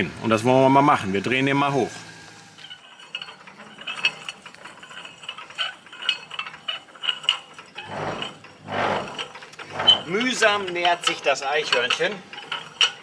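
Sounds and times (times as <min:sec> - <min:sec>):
hand crank gearing clicking: 0:02.6 - 0:13.0.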